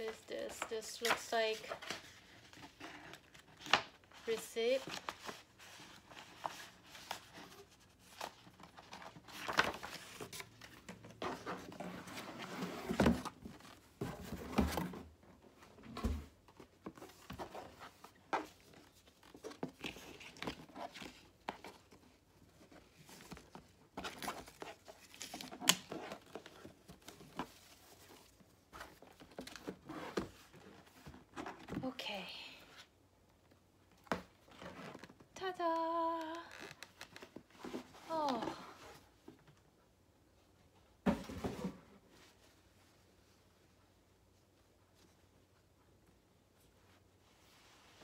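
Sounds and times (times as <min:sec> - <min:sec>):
paper and cardboard rustling: 0:00.0 - 0:32.0.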